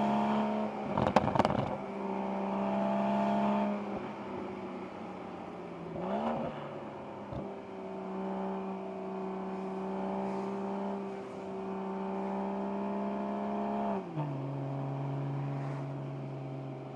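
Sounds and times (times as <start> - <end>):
car engine under steady throttle: 0.0 - 16.9.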